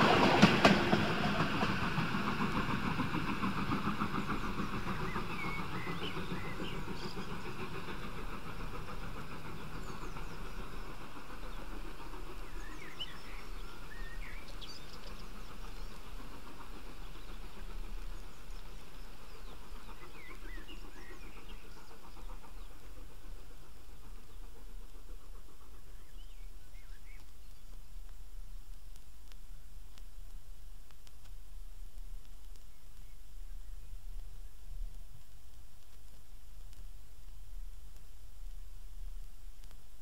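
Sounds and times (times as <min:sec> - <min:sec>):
steam locomotive exhaust: 0:00.0 - 0:40.0
birds chirping: 0:02.3 - 0:28.8.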